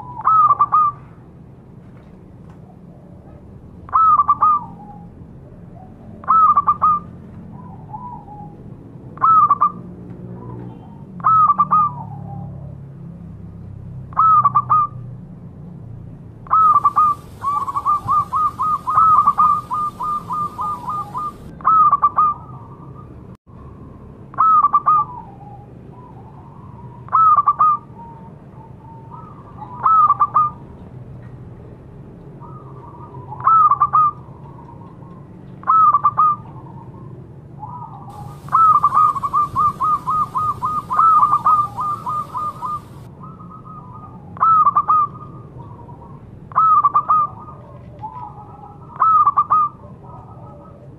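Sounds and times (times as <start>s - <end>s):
dove cooing: 16.5s - 22.8s, 37.6s - 43.8s.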